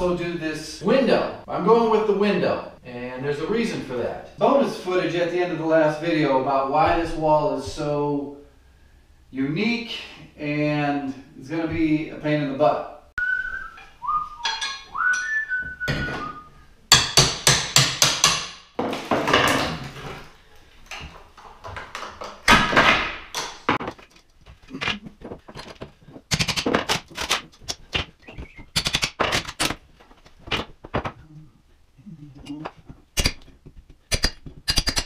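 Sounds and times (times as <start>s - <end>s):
plaster crunching: 18.9s - 31.3s.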